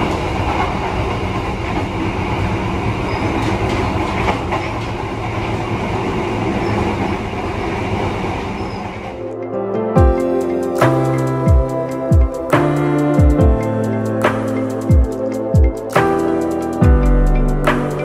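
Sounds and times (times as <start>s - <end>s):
train wheels rumbling on rails: 0.0s - 9.2s.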